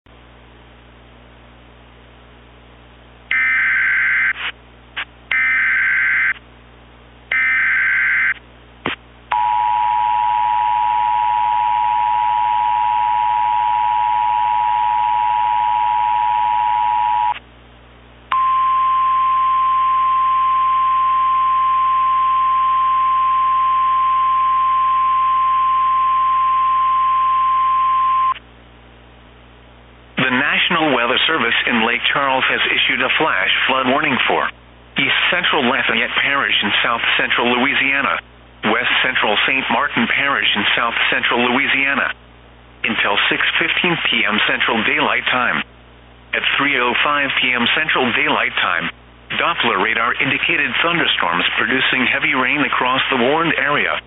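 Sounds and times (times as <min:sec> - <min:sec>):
single-pitch warning alarm tone: 0:03.3 - 0:04.4, 0:05.3 - 0:06.4, 0:07.3 - 0:08.4, 0:09.3 - 0:17.4, 0:18.3 - 0:28.4
digital header data bursts: 0:03.3 - 0:04.6
two-tone attention signal: 0:18.3 - 0:28.4.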